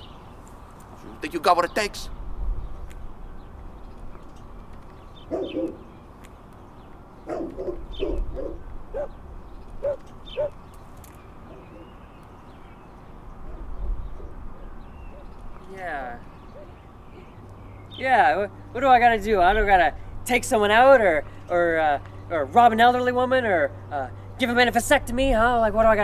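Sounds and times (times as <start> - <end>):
low outdoor hum: 0.0 - 26.0
dog barking: 5.3 - 5.9, 7.3 - 9.1, 9.8 - 10.6.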